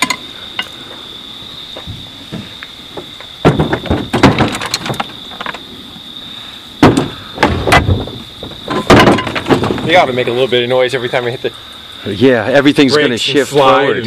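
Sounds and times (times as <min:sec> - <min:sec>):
metal knocks and clanks: 0:00.0 - 0:00.7, 0:01.9 - 0:05.6, 0:06.8 - 0:10.2.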